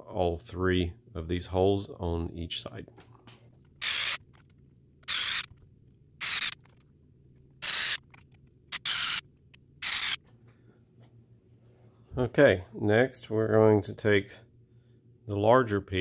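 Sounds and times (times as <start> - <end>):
electric screwdriver bursts: 3.8 - 4.2, 5.0 - 5.5, 6.2 - 6.7, 7.6 - 9.2, 9.8 - 10.2.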